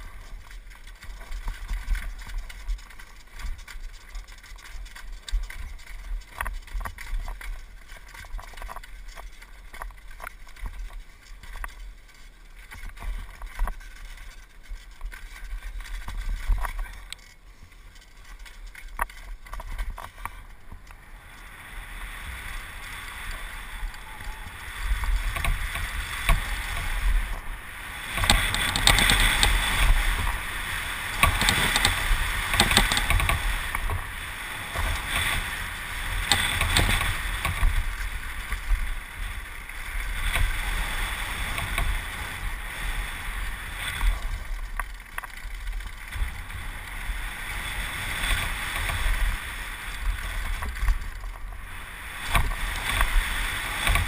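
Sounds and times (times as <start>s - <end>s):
bike clattering over bumps: 0.0s - 54.0s
bike tyre noise on dirt: 0.0s - 54.0s
wind rush on microphone: 19.0s - 54.0s.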